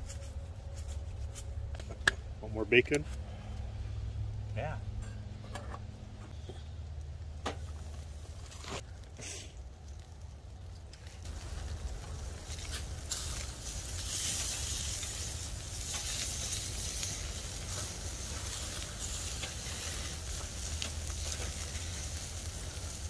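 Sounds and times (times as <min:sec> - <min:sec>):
low steady rumble: 0:00.0 - 0:23.0
bacon sizzling on a grill: 0:06.9 - 0:23.0.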